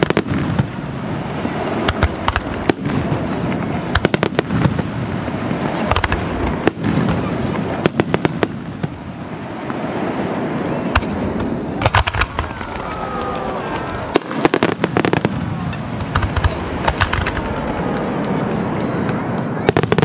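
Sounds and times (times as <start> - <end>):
fireworks bangs and crackles: 0.0 - 20.0
steady background noise: 0.0 - 20.0.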